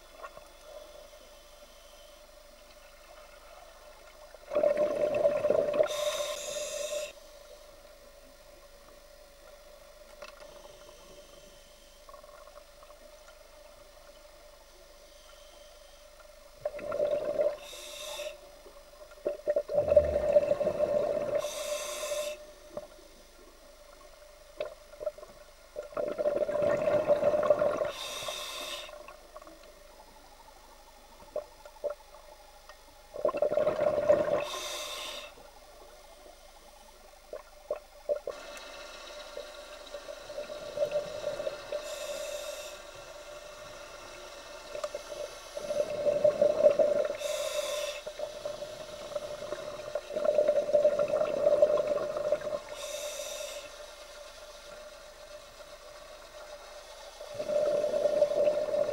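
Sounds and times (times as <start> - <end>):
regulator hiss: 0.0 - 58.9
steady hum: 0.0 - 58.9
underwater bubbling exhalations: 4.5 - 6.0, 19.3 - 21.4, 25.8 - 28.0, 33.2 - 34.5, 49.0 - 52.7, 57.3 - 58.9.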